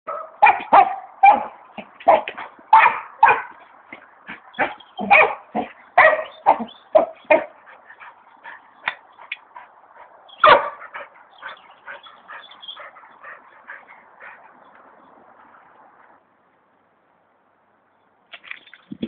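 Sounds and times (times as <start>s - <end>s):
dog barking and yipping: 0.1s - 3.7s, 4.3s - 9.6s, 10.3s - 14.5s.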